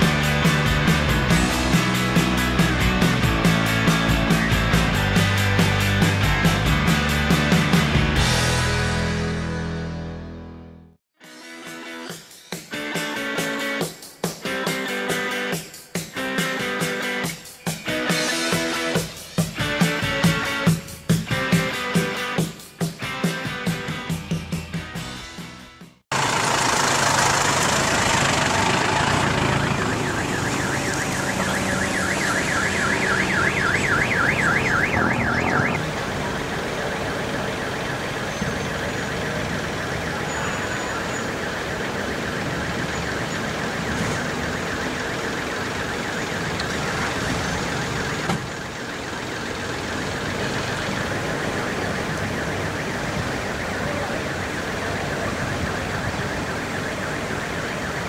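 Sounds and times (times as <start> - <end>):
electronic siren warbling: 28.5 - 58.0.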